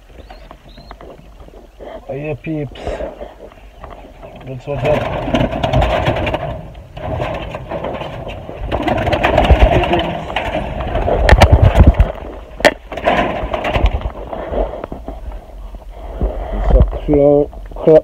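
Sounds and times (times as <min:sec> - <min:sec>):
handling noise rubbing and clattering: 0:00.2 - 0:15.5
low thumps: 0:03.2 - 0:15.2.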